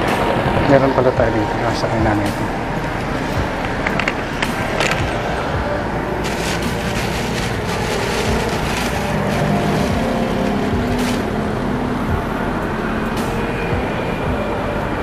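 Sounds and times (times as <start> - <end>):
road traffic: 0.0 - 15.0
plastic bag rustling: 6.1 - 11.3.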